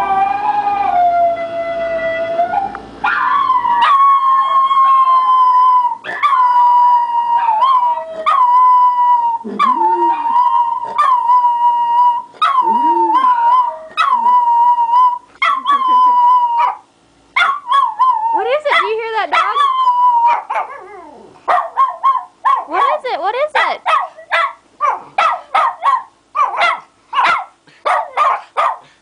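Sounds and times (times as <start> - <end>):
dog howling: 0.0 - 16.8, 17.4 - 22.7.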